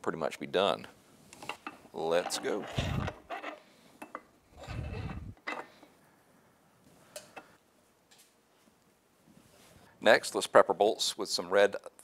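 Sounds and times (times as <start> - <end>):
metal parts rubbing: 2.0 - 3.7, 4.5 - 5.4.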